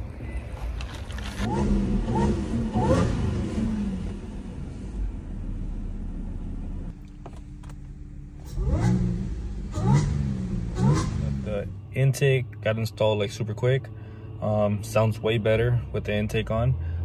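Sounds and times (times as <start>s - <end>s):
car engine revving: 1.4s - 13.4s.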